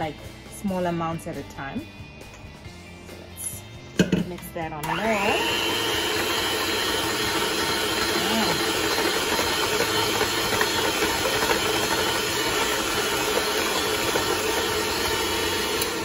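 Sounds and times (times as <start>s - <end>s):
electric hand mixer running: 4.8s - 16.0s.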